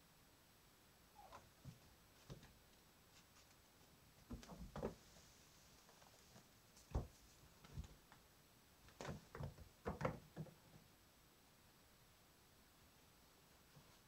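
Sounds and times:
kittens scuffling on wooden floor: 1.3s - 8.2s.

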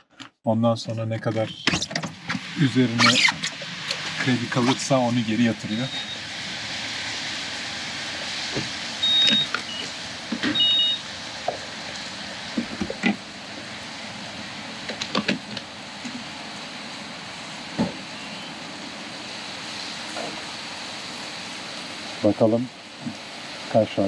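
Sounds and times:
gasoline pump hissing: 1.2s - 24.0s
short high electronic beeps: 5.8s - 6.2s, 9.0s - 9.8s, 10.6s - 11.0s
nozzle clicks and knocks: 14.8s - 15.7s.

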